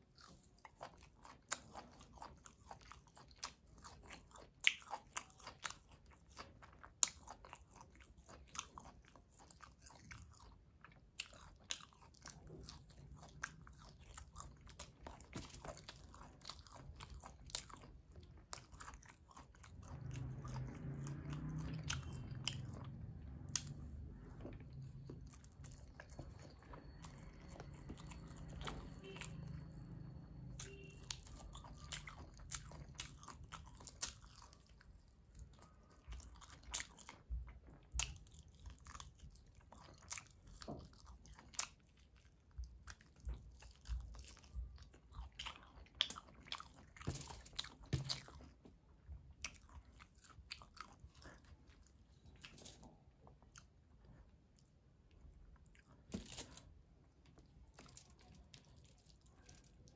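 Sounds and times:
chewing food: 0.0 - 59.9
low hum: 19.4 - 32.7.

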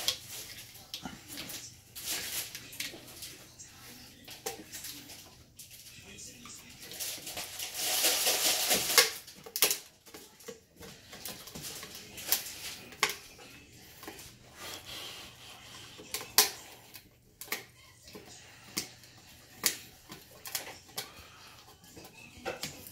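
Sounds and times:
dog gnawing a hard chew: 9.0 - 22.9.

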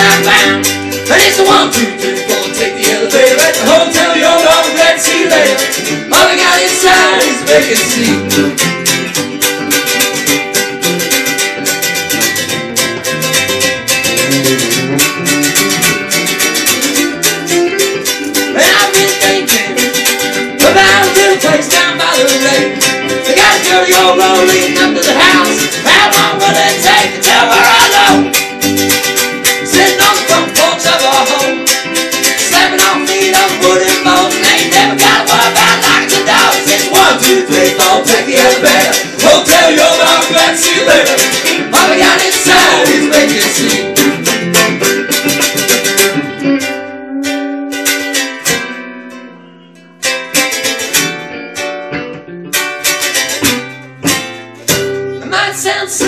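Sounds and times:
person singing: 0.0 - 8.7, 17.3 - 28.6, 29.4 - 45.0, 55.2 - 56.0
strummed string instruments: 0.0 - 56.0.

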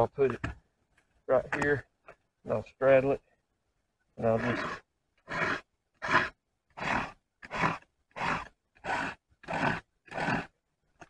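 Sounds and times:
file rasping on chainsaw chain: 4.4 - 10.5.

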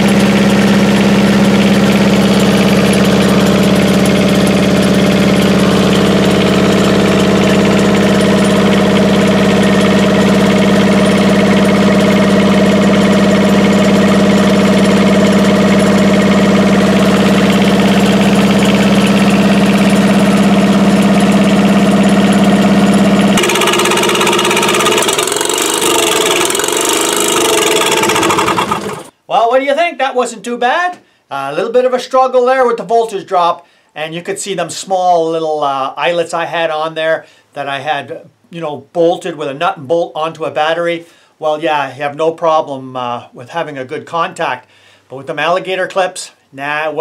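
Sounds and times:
diesel engine running: 0.0 - 29.1.

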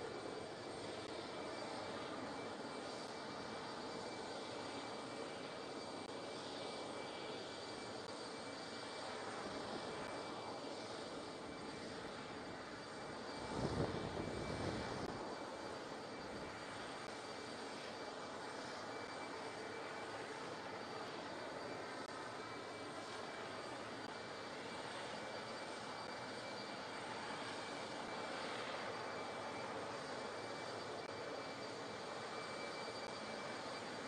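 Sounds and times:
jet turbine rumble with high whine: 0.0 - 34.0.

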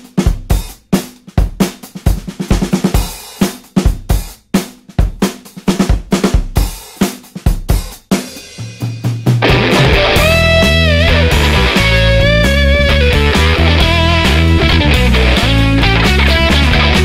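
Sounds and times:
rock drum beat: 0.0 - 17.0
low held bass note: 9.4 - 17.0.

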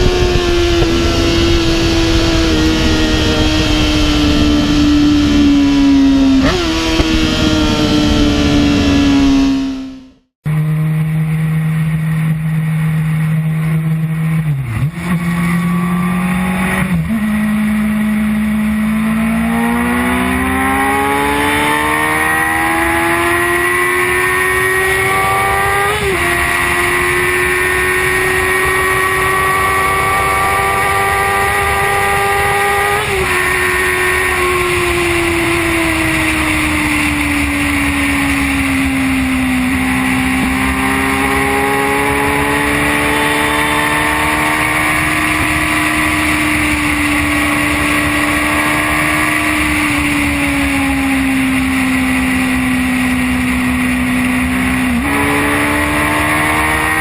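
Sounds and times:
wind rush: 0.0 - 10.0
motorcycle engine revving: 0.0 - 57.0.

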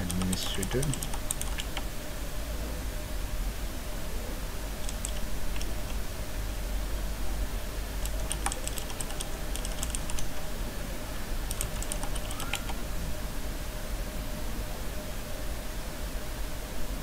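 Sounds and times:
keyboard typing: 0.0 - 1.8, 4.8 - 6.0, 8.0 - 10.3, 11.5 - 12.8
steady low hum: 0.0 - 17.0.

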